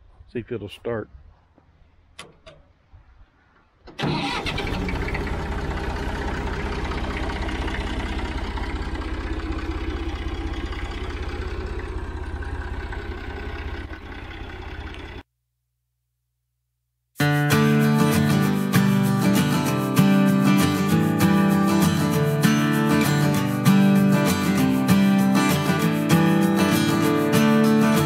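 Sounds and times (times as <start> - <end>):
diesel tractor engine running: 3.9 - 15.2.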